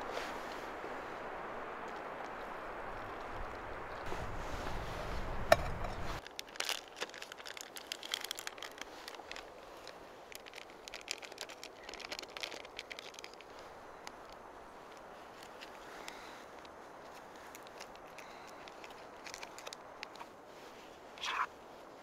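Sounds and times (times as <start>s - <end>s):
outdoor noise: 0.0s - 22.0s
crinkling and clicking: 6.2s - 21.5s.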